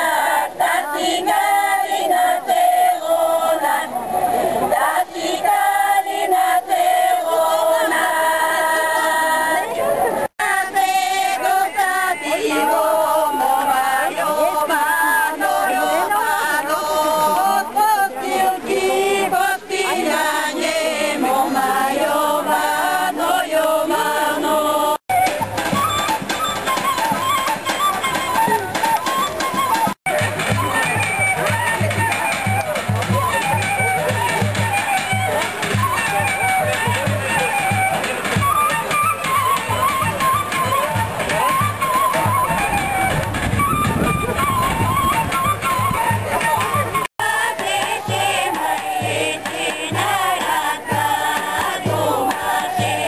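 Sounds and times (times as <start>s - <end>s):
women singing in parts: 0.0s - 25.0s, 47.2s - 53.0s
instrumental folk dance music: 0.0s - 53.0s.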